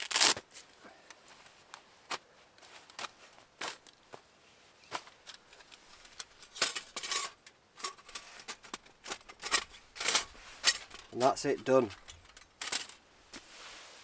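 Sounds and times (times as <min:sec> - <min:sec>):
metal panels clinking together: 0:06.1 - 0:13.0.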